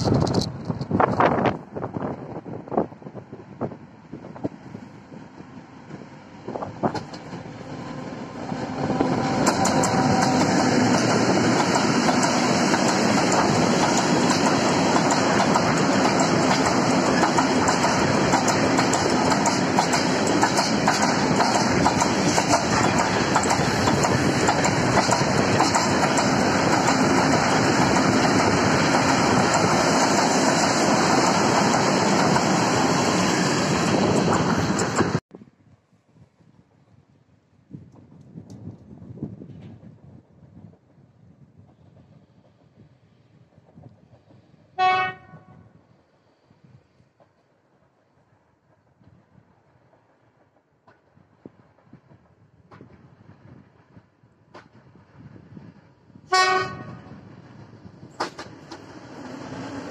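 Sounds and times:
freight train rumble: 0:00.0 - 0:35.3, 0:36.3 - 0:59.9
wheels clicking over rail joints: 0:09.0 - 0:32.6, 0:58.1 - 0:59.9.

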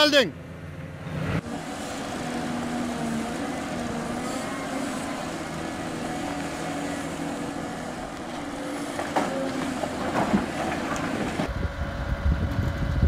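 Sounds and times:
excavator diesel engine running: 0:00.0 - 0:13.0
dirt and rocks thudding into trailer: 0:08.8 - 0:11.5.

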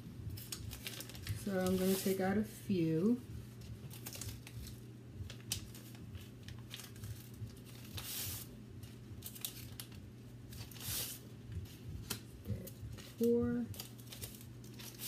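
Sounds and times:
plastic packet crinkling: 0:00.3 - 0:02.2, 0:03.7 - 0:11.0, 0:12.1 - 0:15.0.

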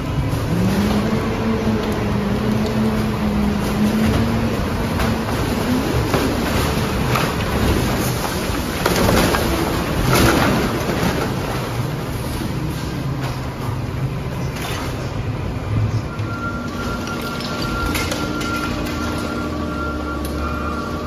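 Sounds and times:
garbage truck engine and hydraulics: 0:00.0 - 0:21.0
trash bags rustling and thudding: 0:02.4 - 0:13.8.

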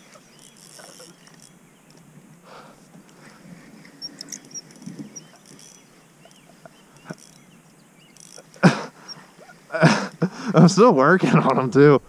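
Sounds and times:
faint clicks and light knocks: 0:00.0 - 0:09.2
birds chirping: 0:00.0 - 0:12.0.

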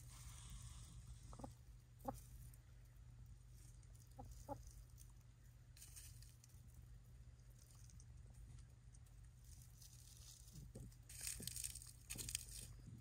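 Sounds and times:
faint low rumble: 0:00.0 - 0:13.0
chickens clucking: 0:01.2 - 0:02.3, 0:04.0 - 0:04.8.

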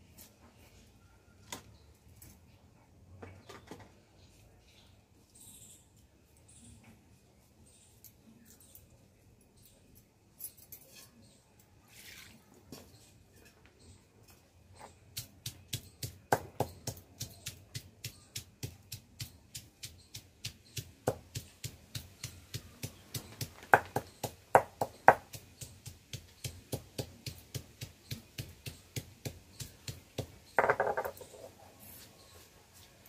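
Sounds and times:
stone pestle knocking on stone slab: 0:15.2 - 0:31.2.

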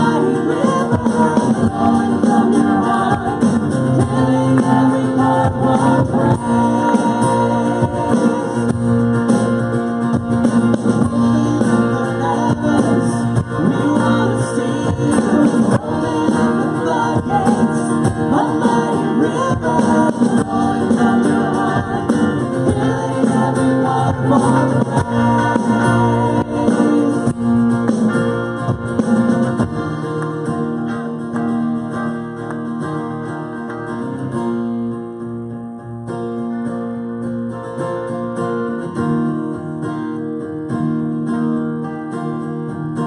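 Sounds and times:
woman singing into a microphone: 0:00.0 - 0:08.7, 0:11.1 - 0:27.4
drum kit: 0:00.0 - 0:32.6
acoustic and electric guitars: 0:00.0 - 0:43.0.

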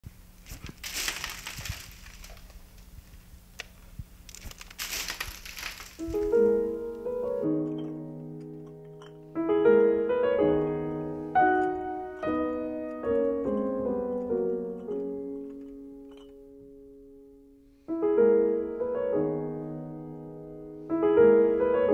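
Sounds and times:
rustling noise: 0:00.3 - 0:09.3
solo piano music: 0:06.0 - 0:21.9.

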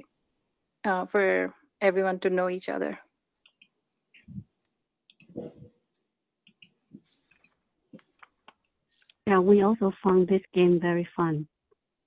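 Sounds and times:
computer clicks: 0:03.4 - 0:03.8, 0:05.1 - 0:09.2.

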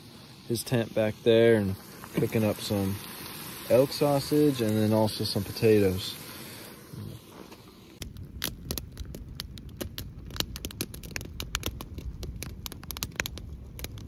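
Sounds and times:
low steady rumble: 0:00.0 - 0:14.0
fat spattering and popping: 0:08.0 - 0:14.0.

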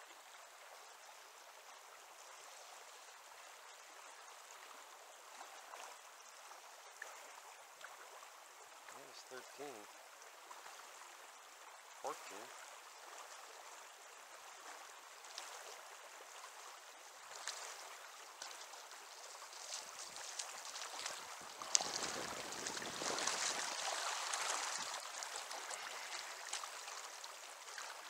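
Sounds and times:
splashing in water: 0:17.3 - 0:28.0
river rushing over rocks: 0:18.7 - 0:28.0.

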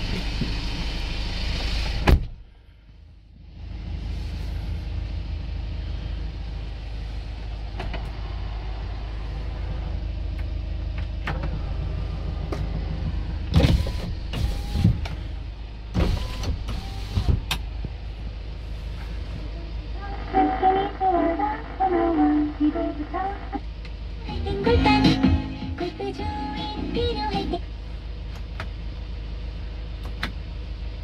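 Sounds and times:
truck engine idling: 0:00.0 - 0:31.0.

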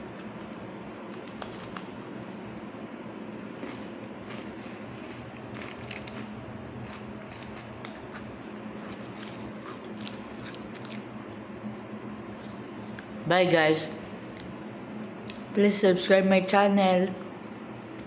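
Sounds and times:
cookies crunching: 0:00.0 - 0:02.2, 0:03.4 - 0:11.2.

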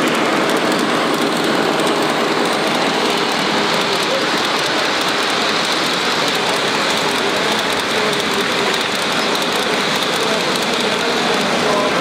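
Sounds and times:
model train wheels rattling: 0:00.0 - 0:12.0.

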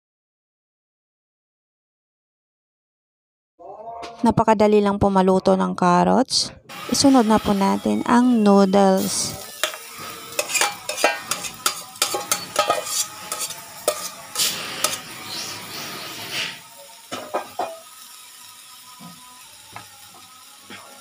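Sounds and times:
noodles sizzling in oil: 0:06.7 - 0:21.0
spatula scraping bowl and wok: 0:06.7 - 0:21.0.

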